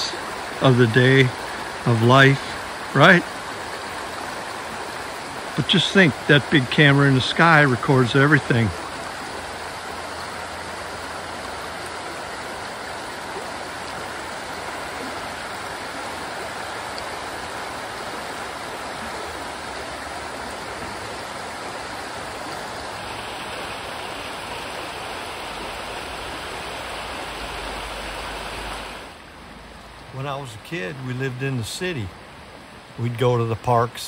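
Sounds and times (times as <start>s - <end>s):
creek water rushing: 0.0s - 34.0s.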